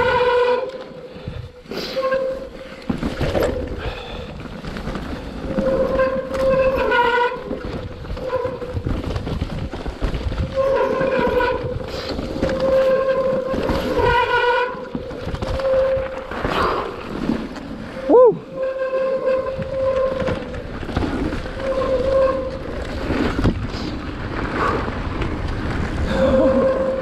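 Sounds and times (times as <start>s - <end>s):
tyres rumbling on trail: 0.0s - 27.0s.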